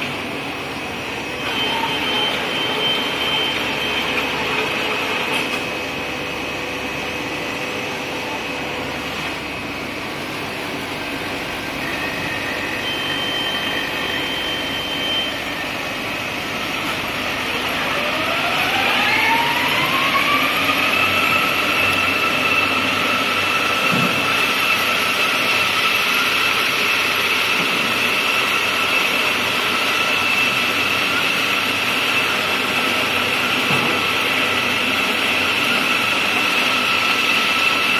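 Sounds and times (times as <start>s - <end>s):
machine running noise: 0.0s - 37.9s
thin high whining tones: 11.8s - 16.1s.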